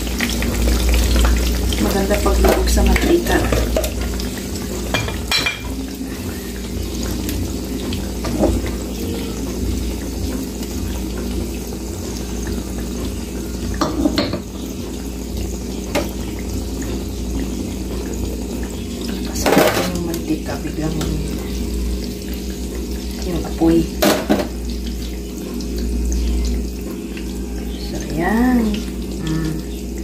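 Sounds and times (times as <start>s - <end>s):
shrimp sizzling in oil: 0.0s - 30.0s
bowls and utensils clinking: 4.9s - 5.8s.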